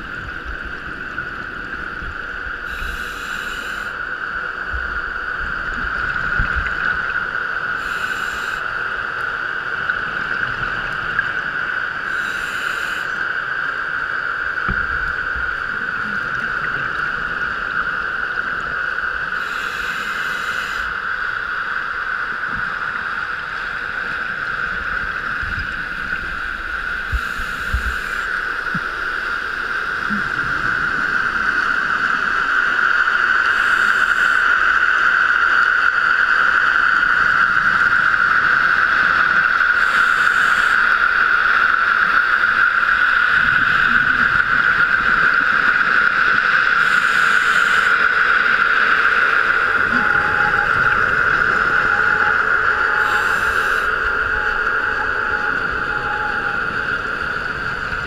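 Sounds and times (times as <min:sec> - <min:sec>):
muffled hiss: 0:00.0 - 0:06.9, 0:07.6 - 0:09.5, 0:11.9 - 0:50.0, 0:50.6 - 0:58.0
exhaled bubbles underwater: 0:42.2 - 0:58.0.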